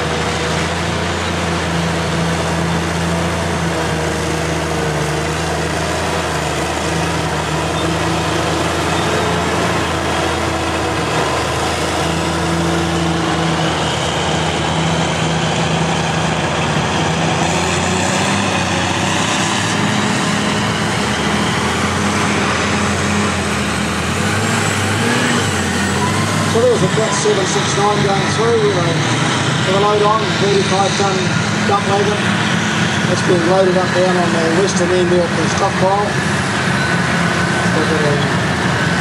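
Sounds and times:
haul truck driving past: 0.0s - 39.0s
motor grader engine: 0.0s - 39.0s.

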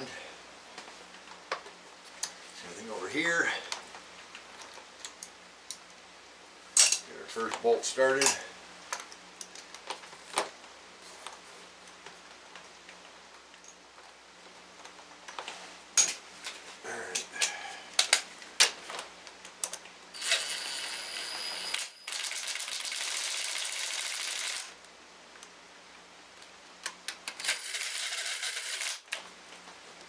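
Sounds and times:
cordless ratchet running: 20.2s - 24.7s, 27.4s - 29.0s.

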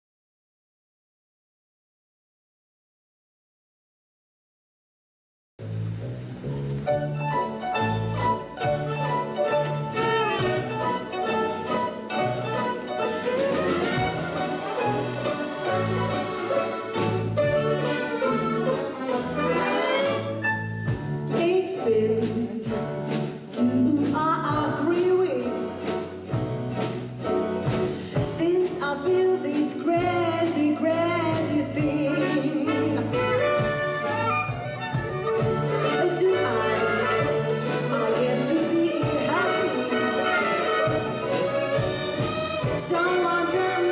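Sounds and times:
bass line: 5.6s - 9.0s
mandolins violins and accordion: 6.9s - 20.9s, 32.0s - 43.9s
woman singing: 21.3s - 22.9s, 23.5s - 26.0s, 28.2s - 33.4s, 35.7s - 41.6s, 42.6s - 43.9s.

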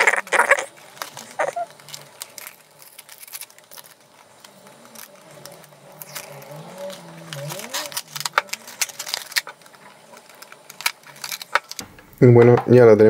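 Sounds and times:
plastic packaging crackling: 0.0s - 12.3s.

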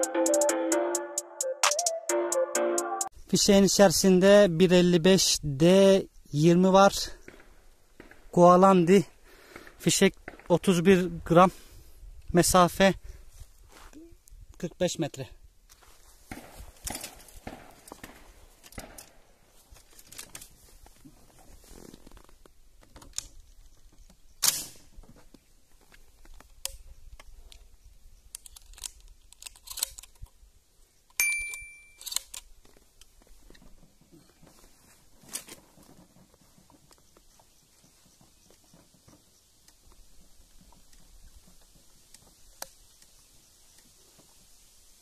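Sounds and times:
shotgun handling clicks and rustles: 16.7s - 21.0s, 21.9s - 30.4s, 31.1s - 37.3s, 38.5s - 44.0s
sharp metallic click with ring: 31.1s - 32.3s.

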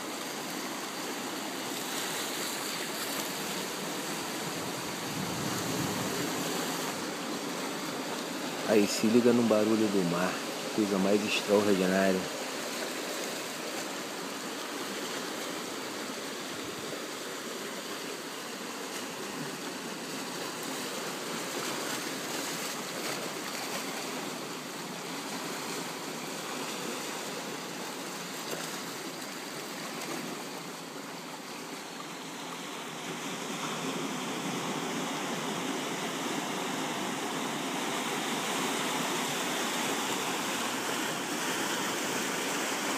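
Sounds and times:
surf breaking on rocks: 1.2s - 13.3s.

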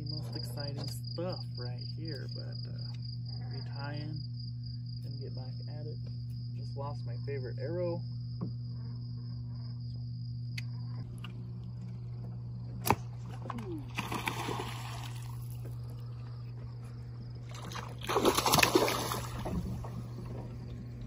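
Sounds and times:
insects chirping: 0.0s - 21.0s
steady low hum: 0.0s - 21.0s
fish splashing in water: 13.6s - 15.8s, 17.4s - 20.6s.

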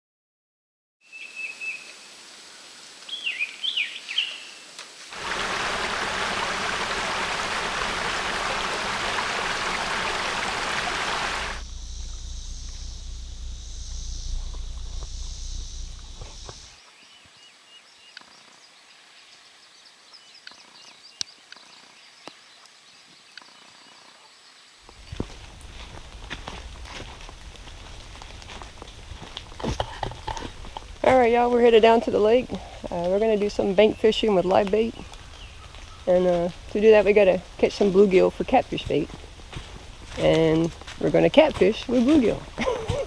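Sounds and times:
creek rushing over rocks: 5.1s - 11.7s
low rumble with high hiss: 5.2s - 16.8s, 24.9s - 34.2s
faint ticks and chirps: 11.2s - 43.0s.

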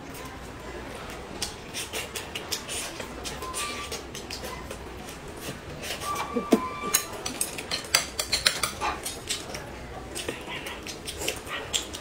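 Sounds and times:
chopsticks clinking on porcelain plates: 5.9s - 9.6s.

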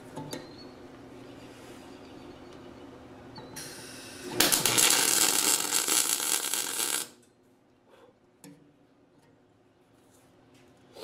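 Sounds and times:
arc welder crackling: 3.6s - 7.3s.

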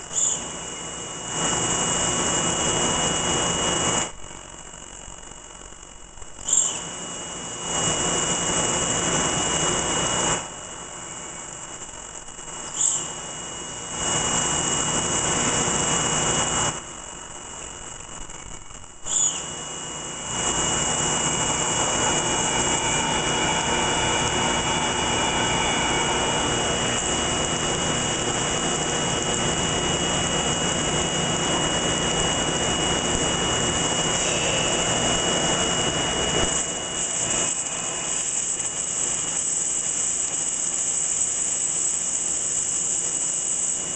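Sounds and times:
thin high machine whine: 0.0s - 43.9s.

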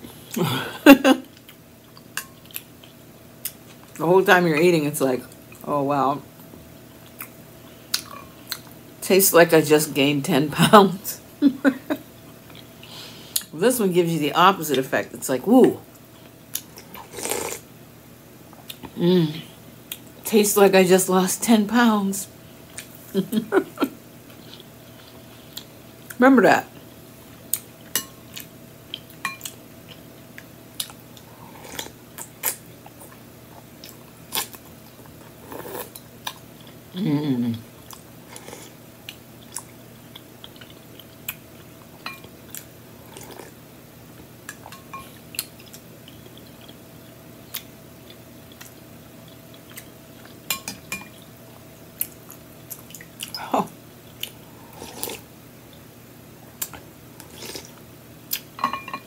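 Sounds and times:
chewing: 1.3s - 4.0s, 24.3s - 26.2s, 37.8s - 43.6s, 44.5s - 51.3s
person humming: 18.9s - 19.5s, 36.9s - 37.6s
spoon clinking in glass bowl: 58.6s - 59.0s.

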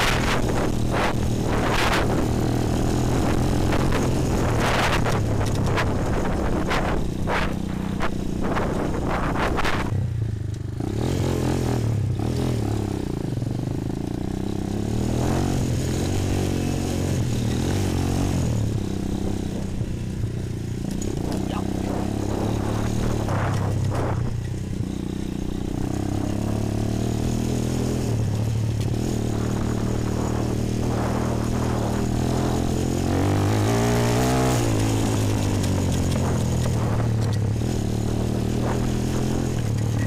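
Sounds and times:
wind rush: 0.0s - 10.2s, 21.2s - 24.5s, 27.4s - 40.0s
quad bike engine running: 0.0s - 40.0s.

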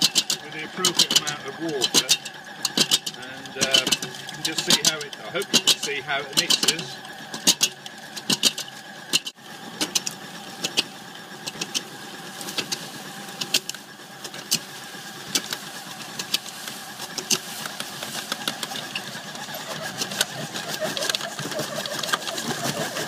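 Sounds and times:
mortar mixer motor hum: 0.0s - 23.0s.

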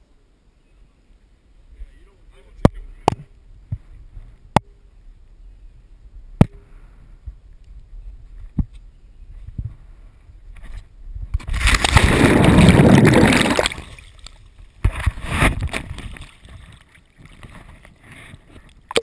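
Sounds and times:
splash and bubbling water: 11.4s - 14.4s
water splashing and sloshing: 11.4s - 19.0s.

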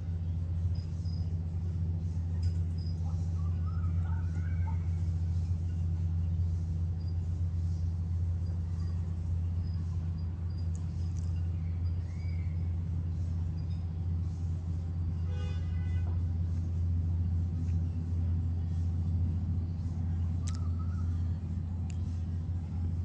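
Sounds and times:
low rumble of motor vehicles: 0.0s - 23.0s.

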